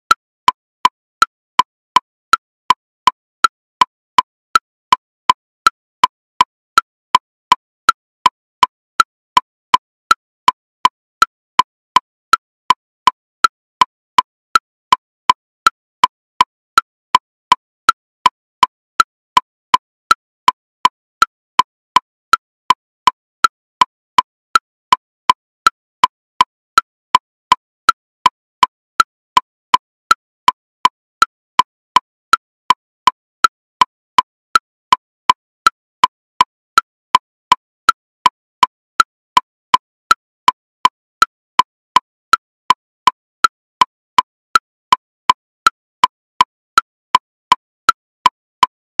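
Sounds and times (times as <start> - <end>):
metronome ticking: 0.0 - 49.0.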